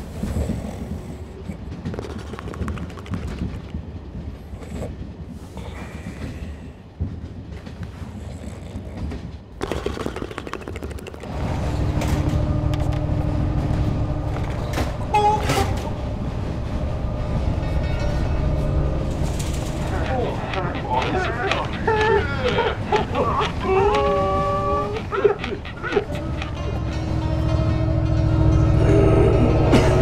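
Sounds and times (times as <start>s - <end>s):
train carriage rumbling: 0.0s - 30.0s
brief higher tone: 11.6s - 19.2s.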